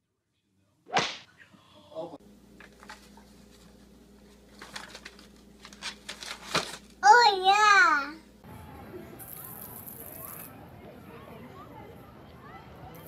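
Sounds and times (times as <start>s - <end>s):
magazine pages crumpling: 2.6s - 7.0s.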